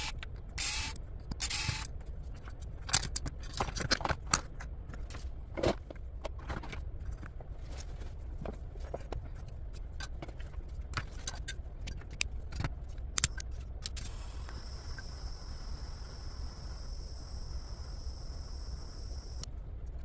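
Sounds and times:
gas torch hissing: 14.0s - 19.5s.

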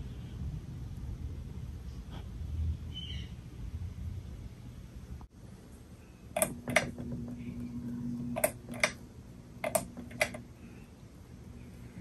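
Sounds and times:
fan motor hum: 0.0s - 12.0s
pull-chain switch clicking: 6.4s - 7.2s, 8.4s - 9.0s, 9.6s - 10.4s.

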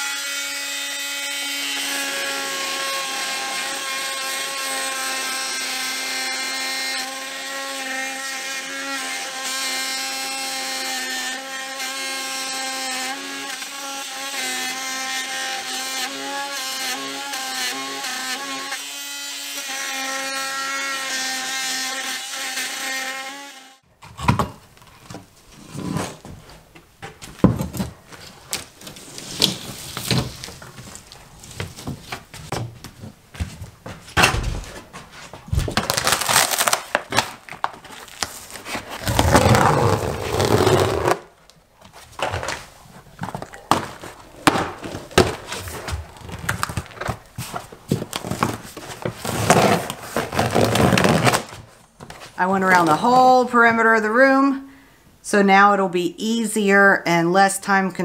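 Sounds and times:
vinyl flooring tearing and crackling: 27.2s - 32.6s, 34.1s - 52.4s.

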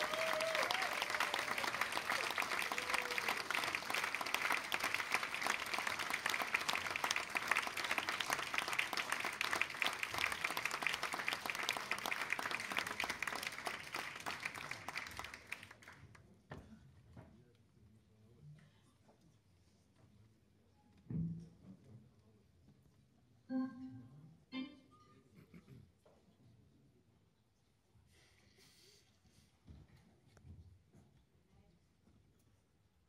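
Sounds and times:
audience applauding: 0.0s - 16.2s.

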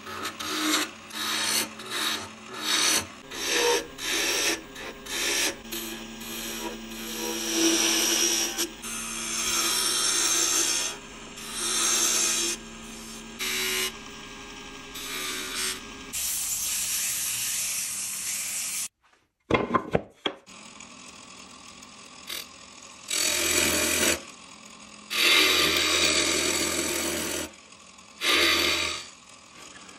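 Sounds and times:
lathe tool cutting wood: 0.0s - 17.7s, 20.5s - 29.9s
saw cutting wood: 0.0s - 18.9s, 22.2s - 29.9s
sandpaper on spinning wood: 15.0s - 18.9s.

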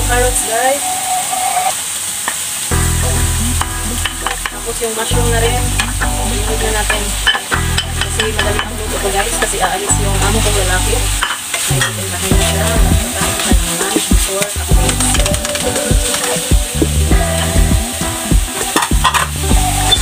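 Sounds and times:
background music: 0.0s - 1.6s, 2.7s - 20.0s
vegetables sizzling in oil: 0.0s - 20.0s
spatula scraping and tapping pan: 6.9s - 9.8s.

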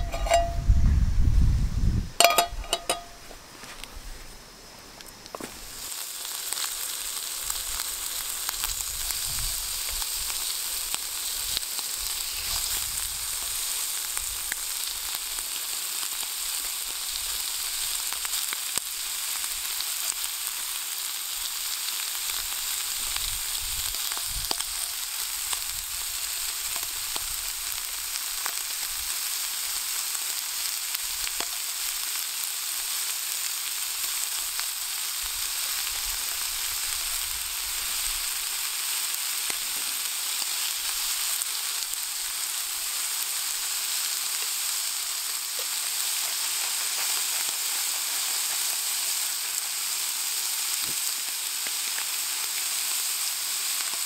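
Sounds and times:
offal sizzling in a frying pan: 0.0s - 0.6s, 4.7s - 54.0s.

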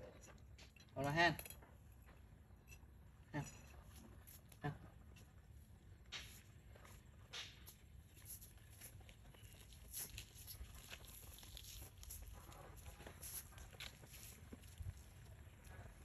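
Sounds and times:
monkey scuffling on stone tiles: 3.4s - 16.0s.

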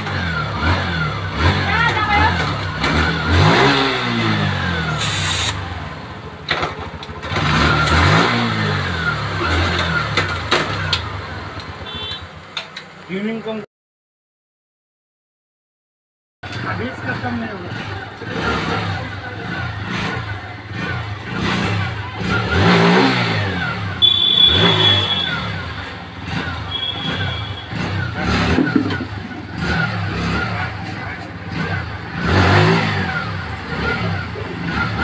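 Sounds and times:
motorcycle engine revving: 0.0s - 12.6s, 16.4s - 35.0s
short high beeps: 24.0s - 25.5s.

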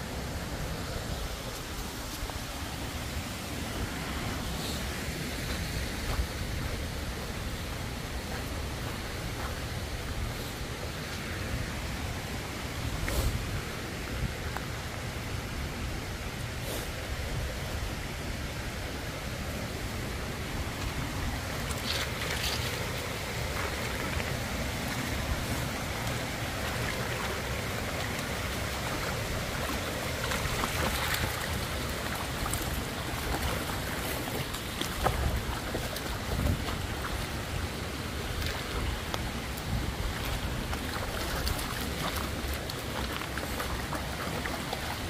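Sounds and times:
wind buffeting microphone: 28.1s - 42.6s.

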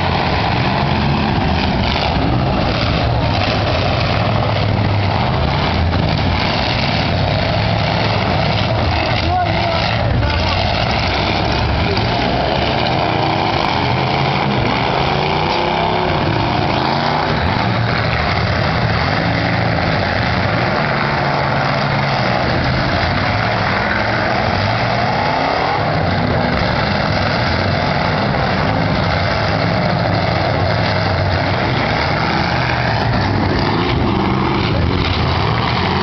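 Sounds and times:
car engines revving: 0.0s - 36.0s.

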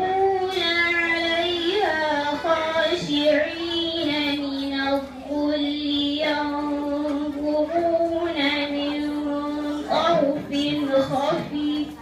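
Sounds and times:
girl chanting melodically: 0.0s - 12.0s.

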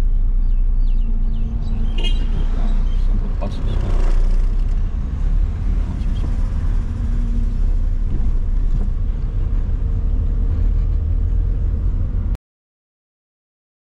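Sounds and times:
car interior road rumble: 0.0s - 12.4s.

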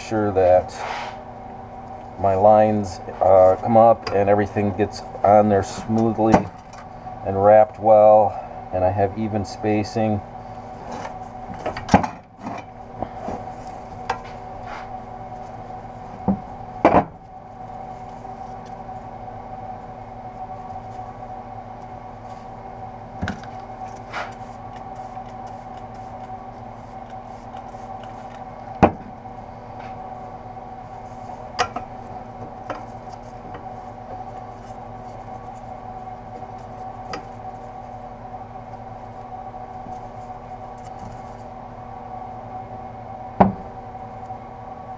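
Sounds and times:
steady hum: 0.0s - 44.9s.

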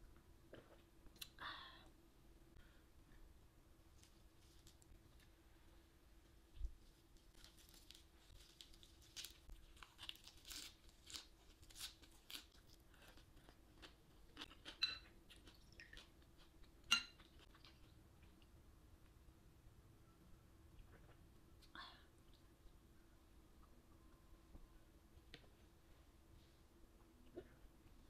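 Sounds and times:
small glass clinking: 14.8s - 15.1s, 16.9s - 17.2s.

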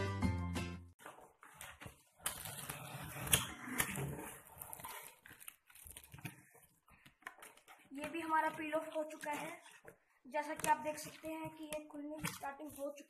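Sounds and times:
plastic packaging crackling: 1.0s - 9.8s.

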